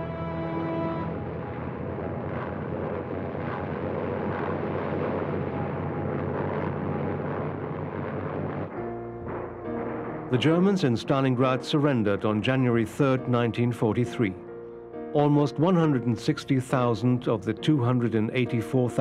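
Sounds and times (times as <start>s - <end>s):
propeller plane engine drone: 0.0s - 10.4s.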